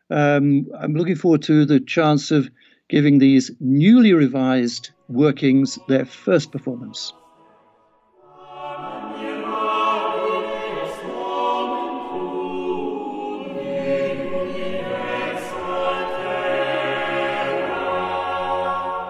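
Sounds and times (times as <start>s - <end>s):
choir singing slowly: 5.0s - 19.0s.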